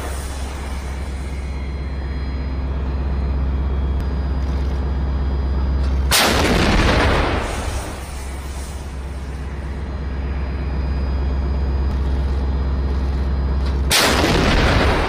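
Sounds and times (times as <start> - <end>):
rumble of previous round: 0.0 - 15.0
vehicle engine humming: 0.0 - 15.0
howitzer shot blast: 6.0 - 9.7, 13.8 - 15.0.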